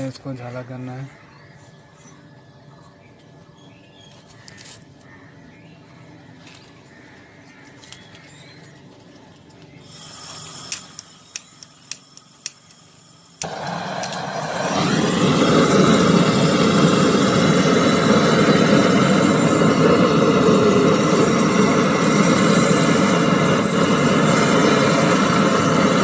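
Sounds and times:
sharp clicks: 10.6 - 14.2
brazing torch flame rushing: 13.4 - 26.0.

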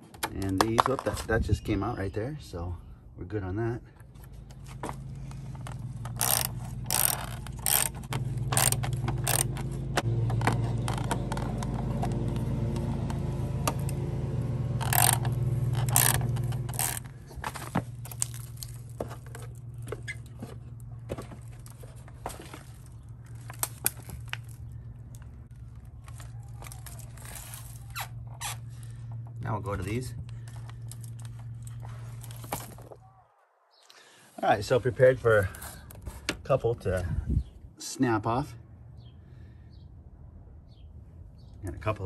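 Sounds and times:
metal parts clicking and scraping: 5.2 - 12.2, 14.8 - 20.6, 21.2 - 29.0.

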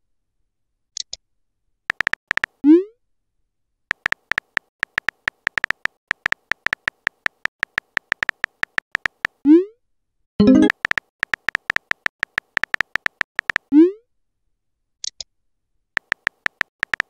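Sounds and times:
electronic keyboard typing clicks: 1.9 - 2.6, 3.9 - 9.4, 10.4 - 13.7, 16.0 - 17.0.

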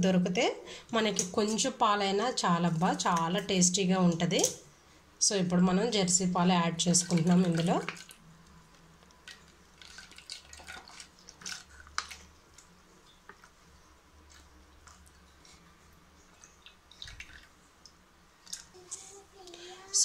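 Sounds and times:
faint dripping and splashing: 6.6 - 19.9
milk trickling into a bowl: 6.9 - 8.2, 9.2 - 18.8.

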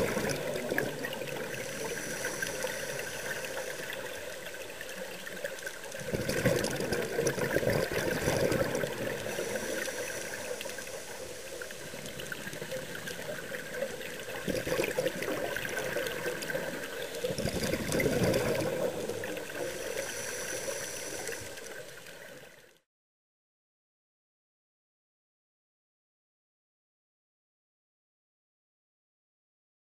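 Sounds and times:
diver exhaling bubbles: 0.0 - 3.6, 6.0 - 10.4, 14.4 - 19.8
steady underwater hiss: 0.0 - 22.9.

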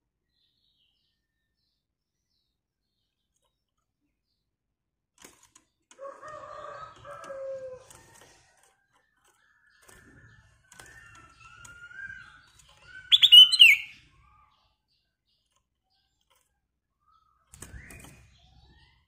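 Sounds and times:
bird singing whistled phrases: 11.4 - 14.0.

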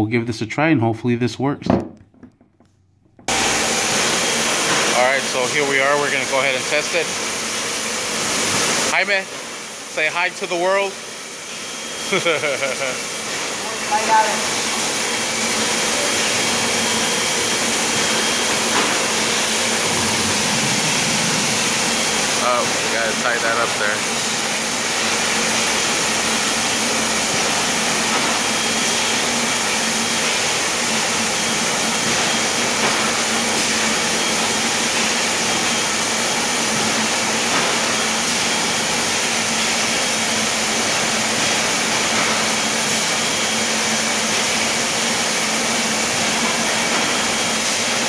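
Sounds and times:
steady low hum: 8.8 - 27.6.

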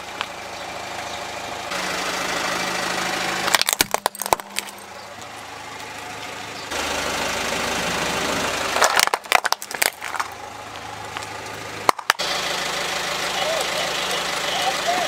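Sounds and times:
car idling: 0.0 - 15.0
plastic toy cracking: 3.5 - 4.8, 8.8 - 10.4.

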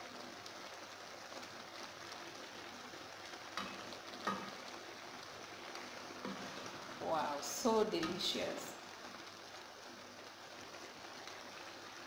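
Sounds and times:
spinach simmering with crackling hiss: 0.0 - 12.0
wooden spoon stirring: 3.4 - 8.3.

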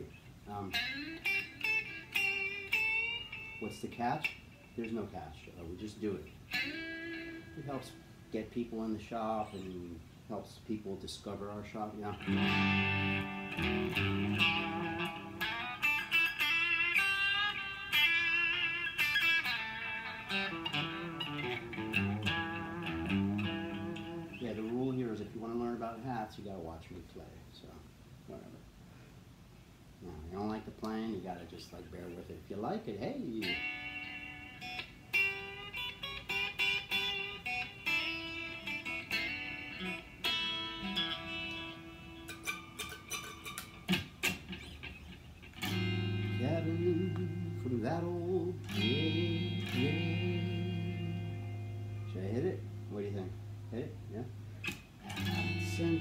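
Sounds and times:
electric guitar picked notes: 0.0 - 10.0, 11.9 - 25.3, 33.0 - 56.0.

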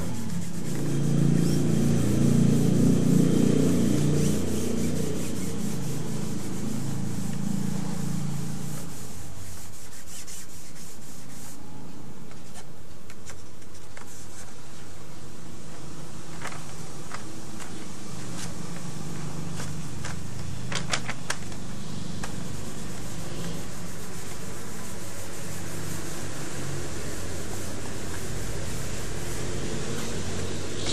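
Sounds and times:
cotton rubbing on paper: 0.0 - 14.9, 21.9 - 30.9.

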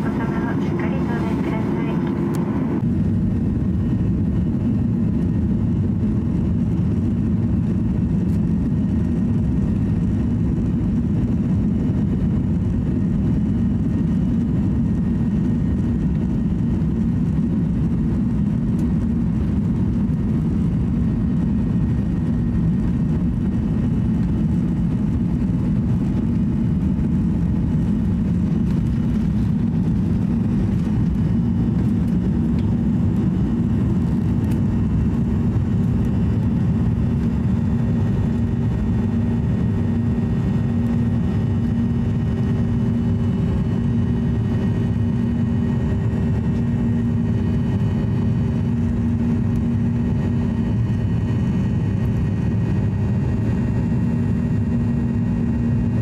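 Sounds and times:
faint steady whine: 0.0 - 56.0
jet engines at takeoff power: 0.0 - 56.0.

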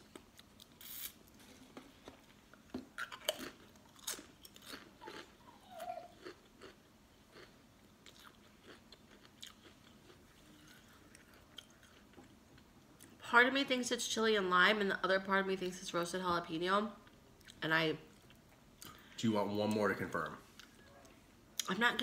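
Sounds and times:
person chewing crisps: 0.1 - 13.2.

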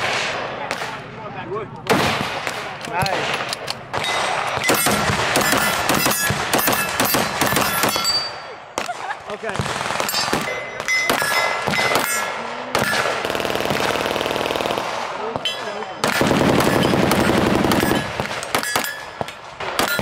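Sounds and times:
rifle gunshots: 0.0 - 1.1, 1.8 - 20.0
rapid pistol shots: 1.9 - 20.0
metallic rings: 4.0 - 8.5, 17.8 - 20.0.

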